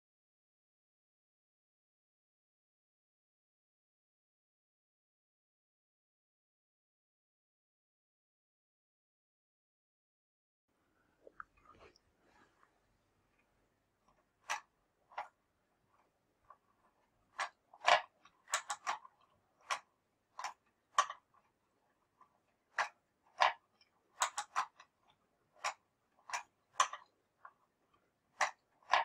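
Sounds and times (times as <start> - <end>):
wooden mechanism clicking and knocking: 13.4 - 29.0.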